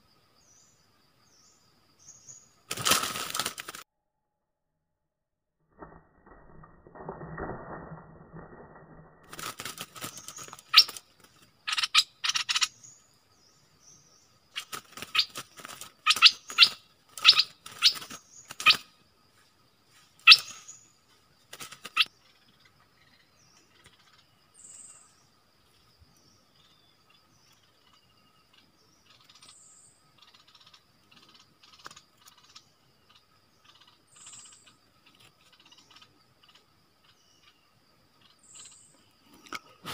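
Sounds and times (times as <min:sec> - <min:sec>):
birds chirping: 0:00.0 - 0:03.8, 0:09.3 - 0:39.9.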